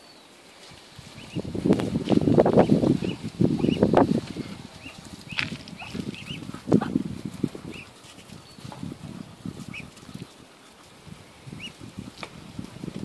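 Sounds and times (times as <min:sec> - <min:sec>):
feet scuffing on dry ground: 0:00.6 - 0:07.0
ducklings peeping: 0:01.0 - 0:13.0.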